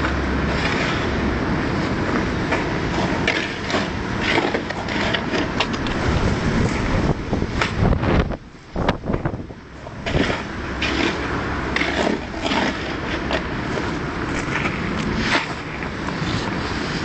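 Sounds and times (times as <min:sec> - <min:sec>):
wind rumble on microphone: 0:00.0 - 0:17.0
tools and stone scraping and knocking: 0:10.0 - 0:13.5.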